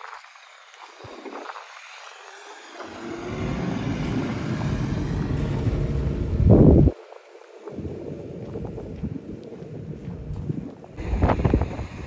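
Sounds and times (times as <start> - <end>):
wind buffeting microphone: 0.9 - 12.0.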